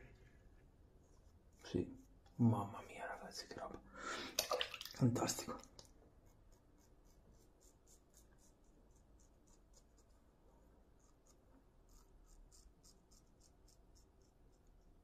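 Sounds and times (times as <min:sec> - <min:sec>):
razor scraping stubble: 0:11.0 - 0:14.7.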